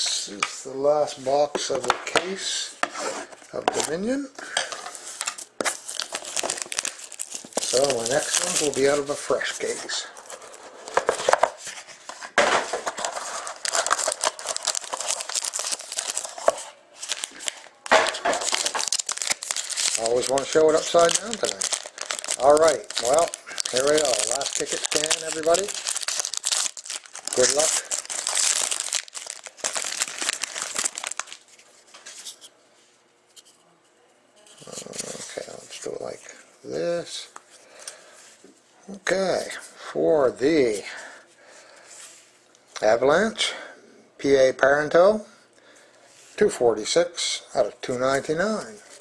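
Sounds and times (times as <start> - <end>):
paper and cardboard rustling: 4.7 - 32.5.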